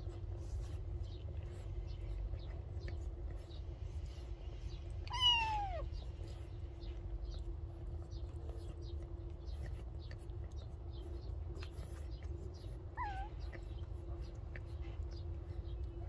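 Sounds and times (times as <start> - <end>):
faint steady hum: 0.0 - 16.0
cat meowing: 5.1 - 5.9.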